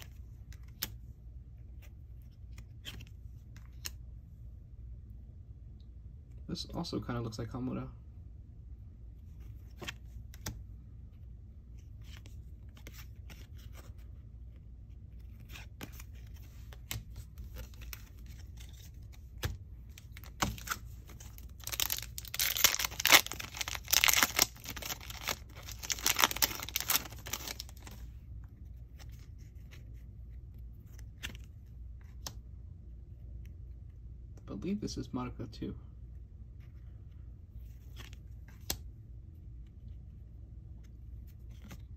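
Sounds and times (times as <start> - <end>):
cards clicking and rustling: 0.0 - 1.0, 9.5 - 10.6, 15.0 - 28.1
foil wrapper tearing and crinkling: 21.3 - 27.9.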